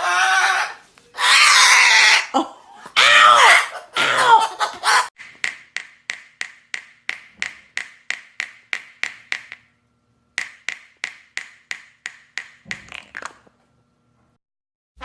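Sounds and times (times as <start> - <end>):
sharp taps or clicks: 5.2 - 9.7, 10.4 - 13.0.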